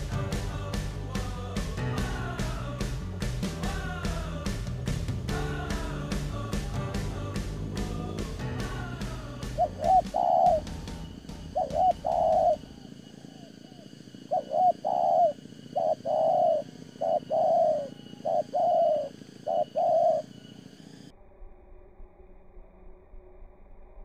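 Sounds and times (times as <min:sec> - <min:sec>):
dove cooing: 0:08.7 - 0:20.4.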